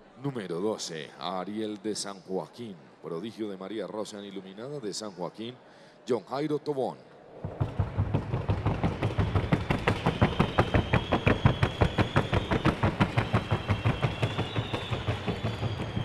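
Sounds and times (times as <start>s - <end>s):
hoofbeats on wooden board: 7.4s - 16.0s.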